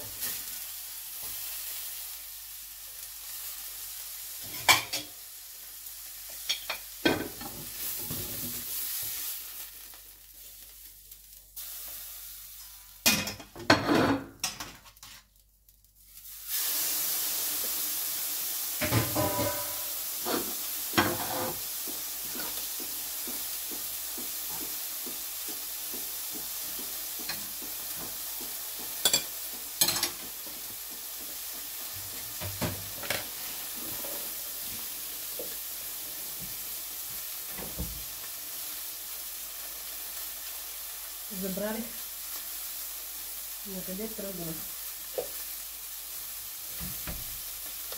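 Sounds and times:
meat sizzling in a frying pan: 0.0s - 47.9s.

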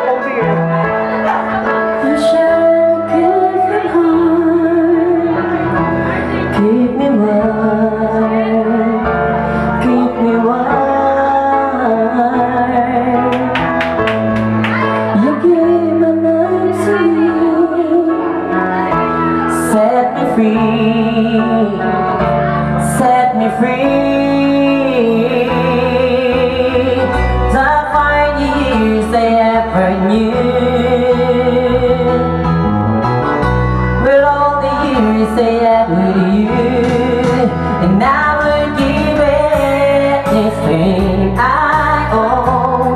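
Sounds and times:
person singing into microphone: 0.0s - 14.0s, 14.7s - 32.7s, 34.0s - 42.9s
instrumental backing music: 0.0s - 42.9s.

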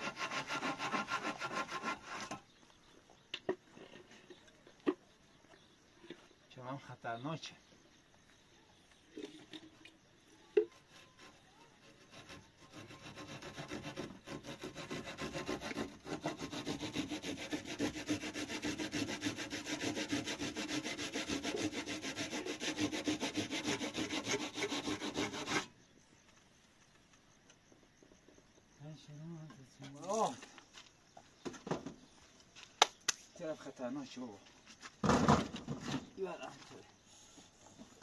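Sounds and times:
saw cutting through wood: 0.0s - 2.5s, 10.7s - 25.7s.

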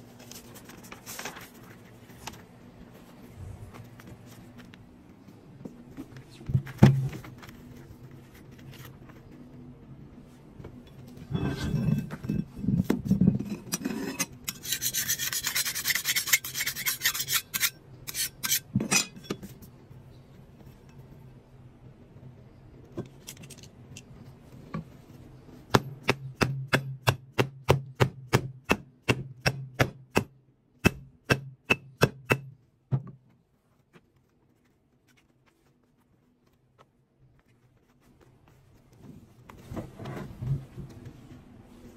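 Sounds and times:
scraping and rubbing on disc: 11.3s - 18.7s.

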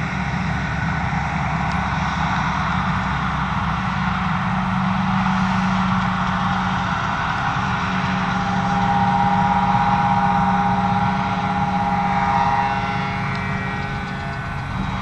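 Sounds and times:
engines droning: 0.0s - 15.0s
high machine whine: 0.0s - 15.0s.

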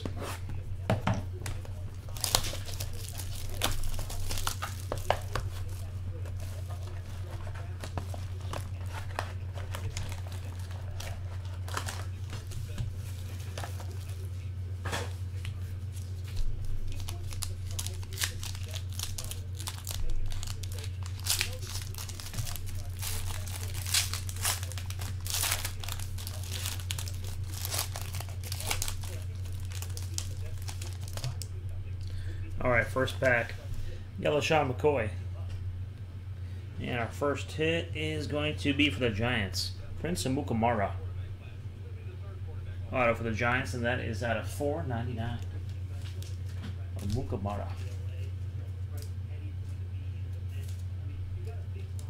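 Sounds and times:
steady low hum: 0.0s - 52.0s
plastic wrapping crinkling and tearing: 1.4s - 14.4s, 15.0s - 31.8s
foil packs handled: 1.4s - 31.6s.

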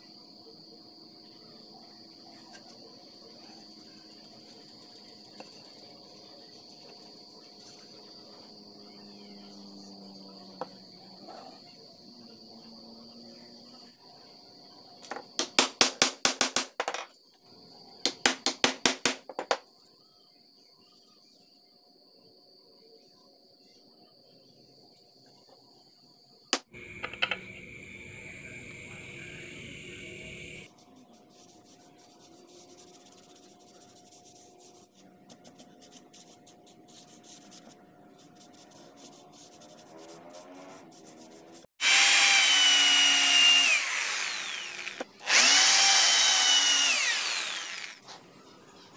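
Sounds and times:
cricket trill: 23.6s - 30.7s, 41.8s - 48.1s.

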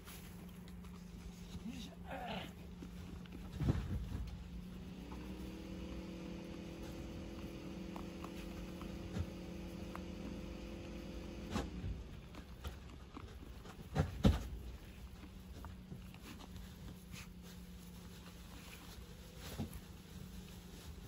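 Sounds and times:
machine hum: 0.0s - 13.8s
goat feeding at hay bucket: 0.0s - 21.0s
low constant hum: 0.0s - 21.0s.

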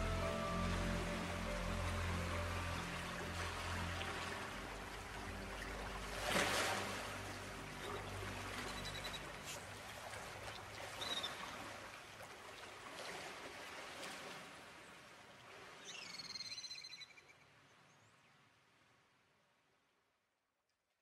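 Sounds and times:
low held tones: 0.0s - 6.0s
soft trickling water: 0.0s - 16.3s.

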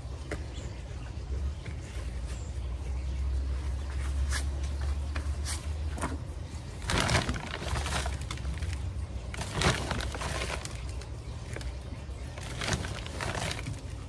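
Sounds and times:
plastic bag rustling: 3.7s - 14.0s
soil crumbling: 6.6s - 14.0s.

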